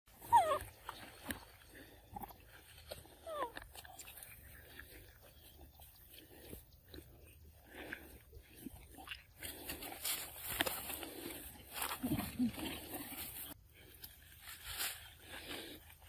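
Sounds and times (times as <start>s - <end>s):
monkeys chewing and smacking: 0.1s - 14.4s
monkey squeak: 0.2s - 0.6s.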